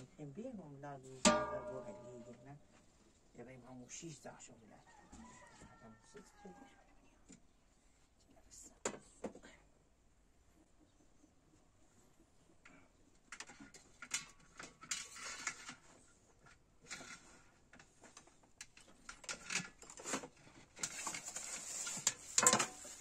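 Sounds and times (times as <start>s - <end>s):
rustling: 13.4s - 23.0s.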